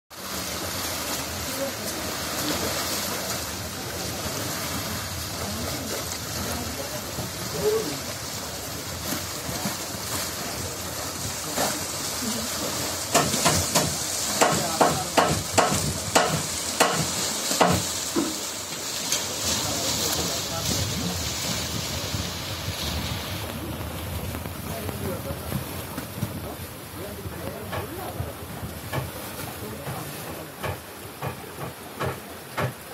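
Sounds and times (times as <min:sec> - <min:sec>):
small waves washing against seawall: 0:00.1 - 0:32.9
sharp slaps of water: 0:11.2 - 0:20.8, 0:27.4 - 0:32.9
wind hiss on microphone: 0:19.2 - 0:30.2.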